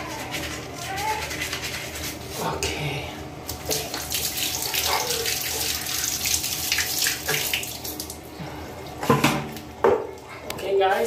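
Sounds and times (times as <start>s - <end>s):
water running from a tap: 3.5s - 8.3s.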